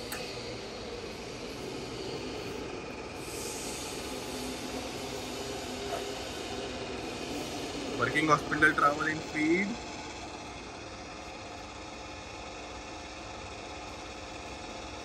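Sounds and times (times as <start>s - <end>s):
drill machine hum: 4.6s - 15.0s.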